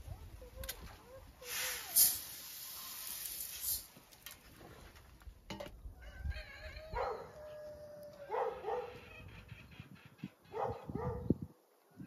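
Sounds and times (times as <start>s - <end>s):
grain rattling through sieve: 1.5s - 4.1s
chickens calling: 6.0s - 11.0s.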